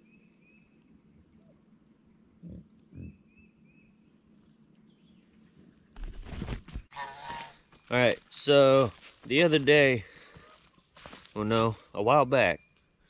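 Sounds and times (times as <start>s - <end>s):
faint high insect hum: 0.0s - 13.0s
low grunts: 2.4s - 3.2s.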